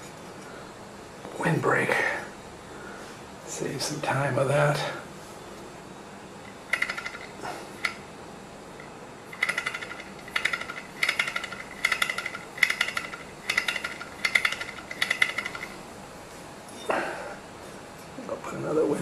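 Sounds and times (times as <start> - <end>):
metallic rattling of engine parts: 6.4 - 8.0, 8.8 - 15.8.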